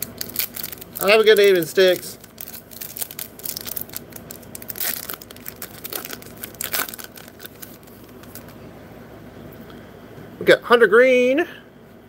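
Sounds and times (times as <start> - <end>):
foil wrapper crinkling and tearing: 0.0 - 8.6.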